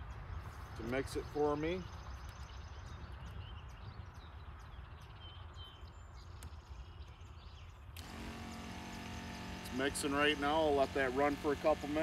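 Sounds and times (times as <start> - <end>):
sprayer pump humming: 8.0 - 12.0.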